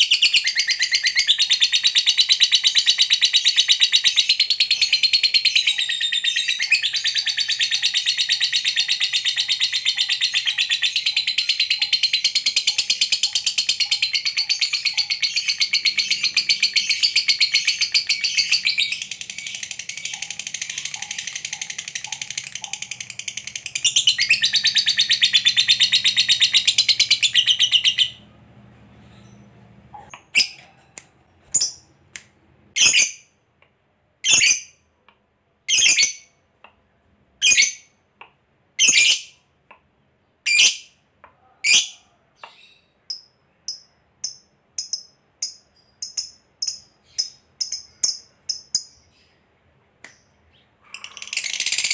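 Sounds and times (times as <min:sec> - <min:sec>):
bird chattering trill: 0:00.0 - 0:28.2, 0:50.8 - 0:51.9
bird chirps: 0:00.0 - 0:32.1, 0:40.3 - 0:51.9.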